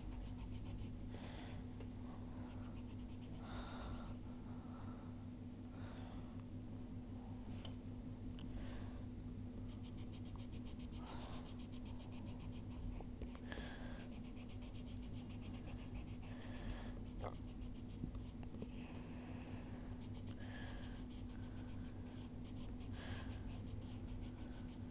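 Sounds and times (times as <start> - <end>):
pencil scratching on paper: 0.0 - 1.0, 2.5 - 3.4, 9.7 - 12.9, 14.0 - 18.4, 20.0 - 24.9
steady low hum: 0.0 - 24.9.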